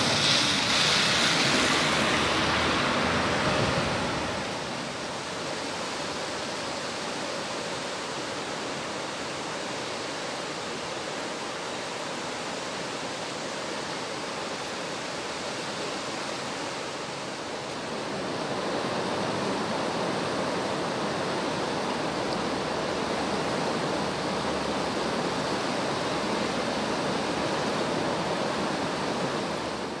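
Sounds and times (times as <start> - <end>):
river water rushing: 0.0 - 30.0.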